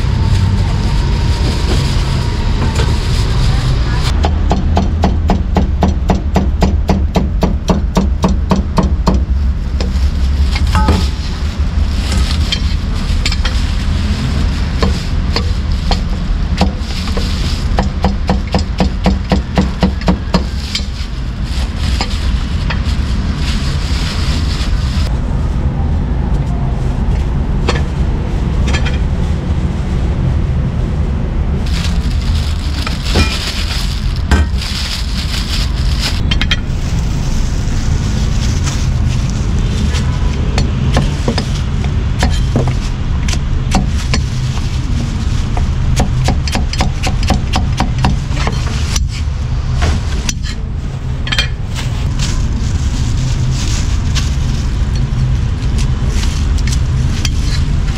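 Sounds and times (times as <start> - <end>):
street traffic rumble: 0.0 - 57.9.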